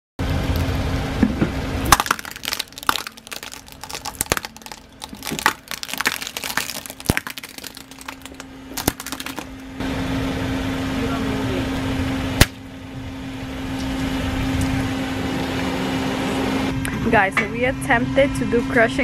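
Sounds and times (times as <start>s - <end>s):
low engine hum: 0.2s - 19.0s
glass ornaments crunching under tyre: 1.8s - 9.6s.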